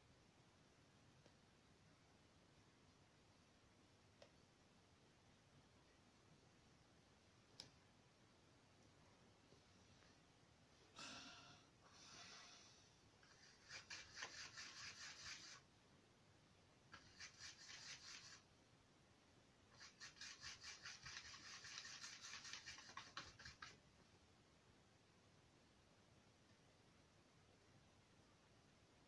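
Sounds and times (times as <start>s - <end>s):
paintbrush scrubbing: 13.2s - 15.7s, 16.9s - 18.5s, 19.7s - 23.8s.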